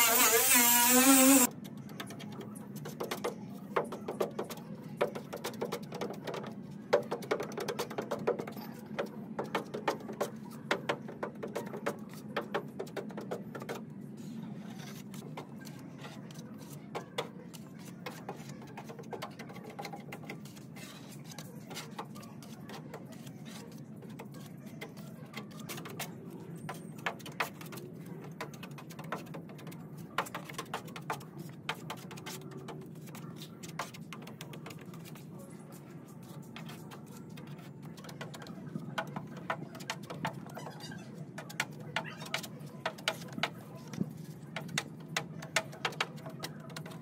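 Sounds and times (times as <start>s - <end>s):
putty knife scraping metal: 0.0s - 1.5s.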